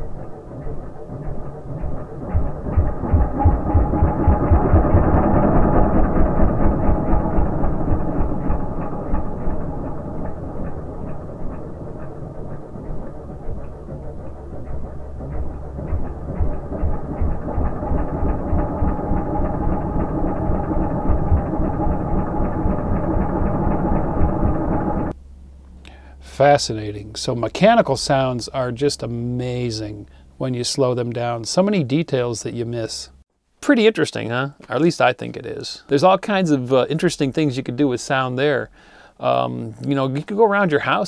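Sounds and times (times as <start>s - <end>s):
slowed dirt bike engine thumps: 0.6s - 4.9s, 7.4s - 19.0s.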